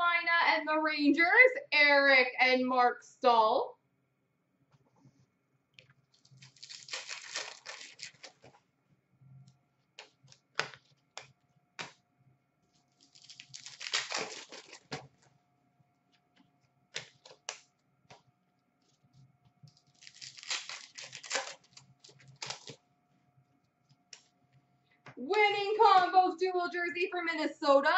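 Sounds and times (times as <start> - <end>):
card pack wrappers tearing: 6.1 - 8.5, 12.9 - 15.2, 17.0 - 17.7, 19.7 - 22.8
cards clicking and tapping: 10.0 - 12.0, 16.4 - 19.0.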